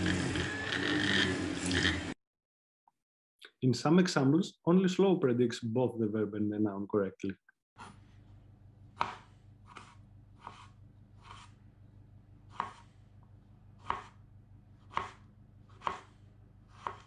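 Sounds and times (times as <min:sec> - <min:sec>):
knife cutting tomato: 0:09.0 - 0:11.6, 0:12.5 - 0:13.0, 0:13.8 - 0:14.2, 0:14.8 - 0:17.0.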